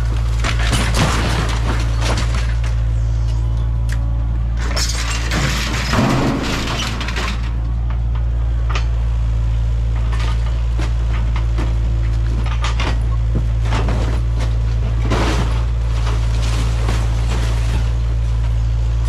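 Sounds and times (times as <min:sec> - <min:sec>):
excavator diesel engine running: 0:00.0 - 0:19.0
sheet metal and glass crunching: 0:00.4 - 0:02.8, 0:04.6 - 0:07.5.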